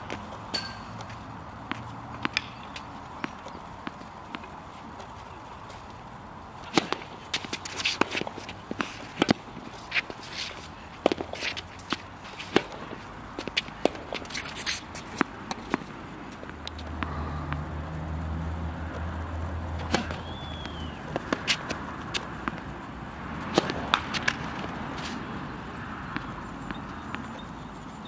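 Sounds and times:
tennis ball bouncing: 0.1s - 5.1s, 6.6s - 16.8s, 23.4s - 25.2s, 26.0s - 27.4s
racket striking tennis ball: 0.5s - 4.0s, 6.7s - 15.9s, 19.8s - 20.2s, 23.4s - 25.2s.

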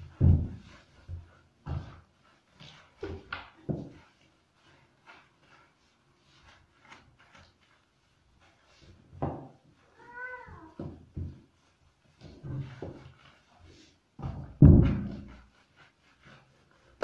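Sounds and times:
cat meowing: 9.9s - 10.8s
dull thumps: 14.2s - 15.4s.

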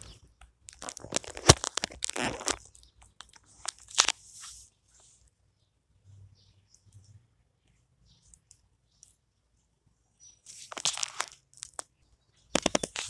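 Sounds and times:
rustling and crackling against fabric: 0.0s - 5.4s, 10.4s - 13.0s
sharp clicks: 12.5s - 13.0s.

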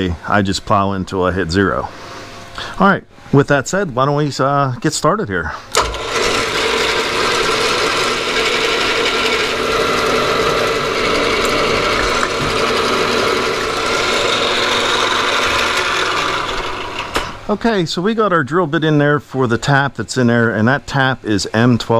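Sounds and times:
milling machine whir: 5.7s - 17.6s
drill bit grinding steel: 5.8s - 17.3s.

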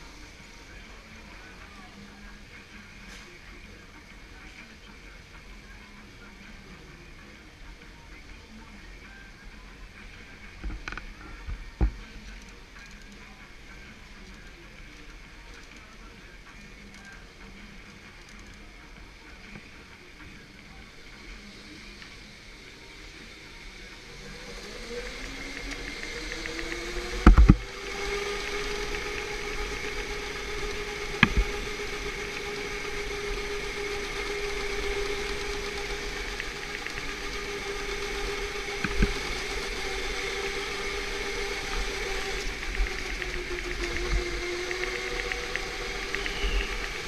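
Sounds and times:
electric go-kart motor whining: 21.4s - 47.0s.

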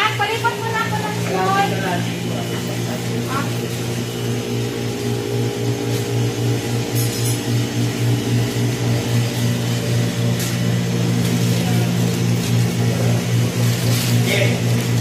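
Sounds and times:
freezers humming: 0.0s - 15.0s.

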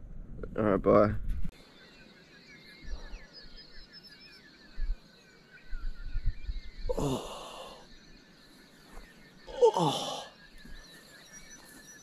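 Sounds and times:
faint birdsong: 0.0s - 12.0s
person groaning: 6.9s - 7.8s, 9.5s - 10.3s.

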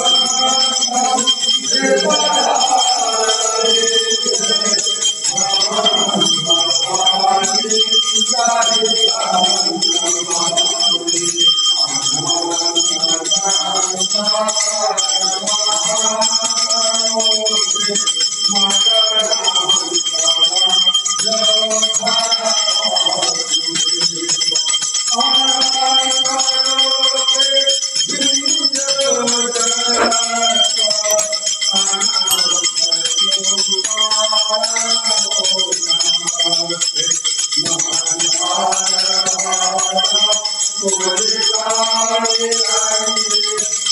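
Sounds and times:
brass hand bell ringing: 0.0s - 43.9s
men singing a hymn together: 0.0s - 43.9s.

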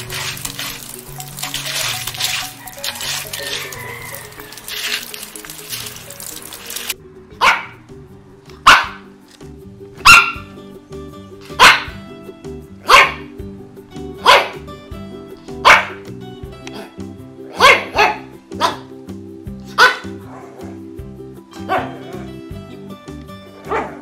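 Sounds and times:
dog barking: 7.4s - 7.8s, 8.6s - 9.1s, 10.0s - 10.5s, 11.6s - 12.0s, 12.8s - 13.3s, 14.2s - 14.6s, 15.6s - 16.0s, 17.5s - 18.9s, 19.7s - 20.8s, 21.6s - 22.3s, 23.6s - 24.0s.

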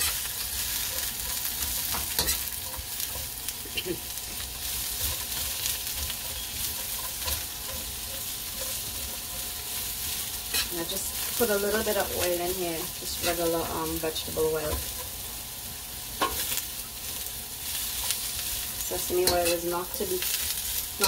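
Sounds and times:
metal spatula scraping a pan: 0.0s - 3.3s, 4.7s - 10.8s
vegetables sizzling in oil: 0.0s - 21.0s.

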